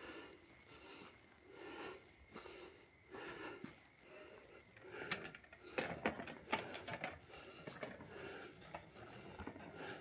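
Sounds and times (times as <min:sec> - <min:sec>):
prayer wheels clicking and knocking: 0:04.7 - 0:10.0.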